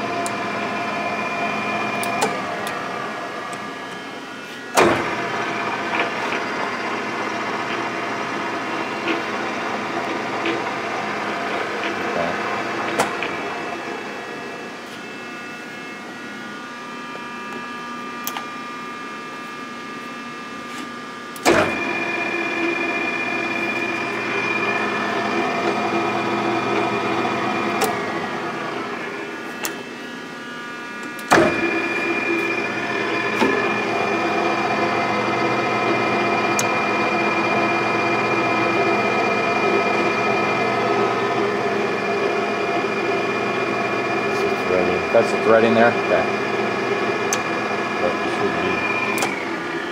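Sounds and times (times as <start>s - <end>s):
lathe whining: 0.0s - 49.9s
lathe switch clunk: 2.0s - 2.8s, 31.0s - 31.7s, 36.5s - 36.8s, 49.1s - 49.4s.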